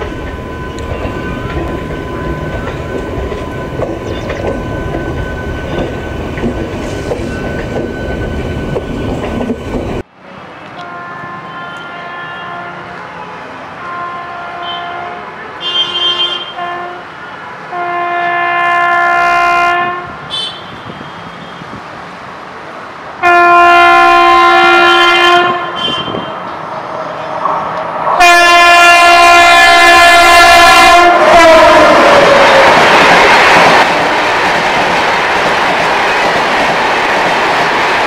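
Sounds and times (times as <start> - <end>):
train rumble: 0.0 - 15.7, 16.3 - 38.0
locomotive multi-tone horn: 10.5 - 21.8, 23.2 - 26.6, 28.2 - 32.8.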